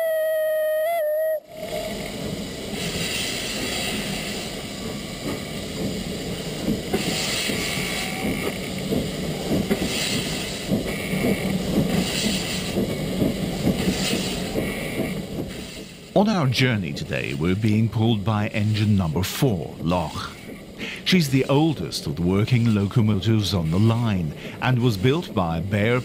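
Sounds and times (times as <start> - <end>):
steam locomotive exhaust hisses: 0.0 - 26.0.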